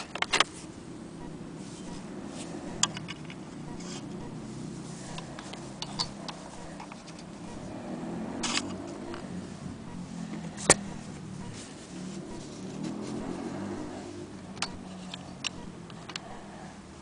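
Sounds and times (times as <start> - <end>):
steady low hum: 0.0 - 17.0
small metallic clicks: 2.7 - 4.0, 5.1 - 7.3, 8.4 - 9.3, 14.4 - 16.5.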